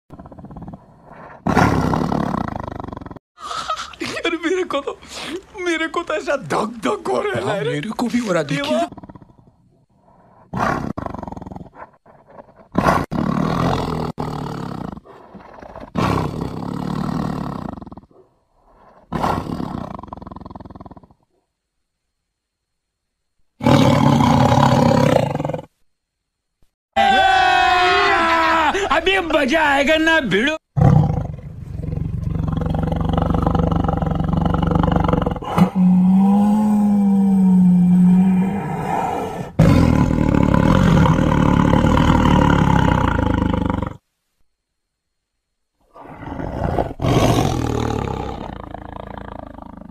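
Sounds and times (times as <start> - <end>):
tiger growling: 0.1 - 3.2, 7.4 - 21.4, 23.6 - 25.8, 30.8 - 44.0, 45.9 - 49.9
tiger roaring: 0.1 - 3.2, 8.5 - 21.2, 23.6 - 25.7, 30.8 - 44.0, 45.9 - 49.9.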